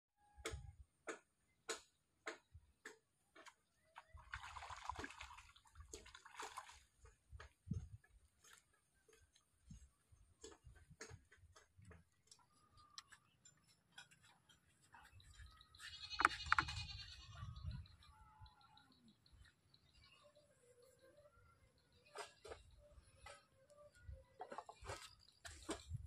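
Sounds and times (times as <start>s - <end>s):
fish splashing in water: 4.2s - 7.0s.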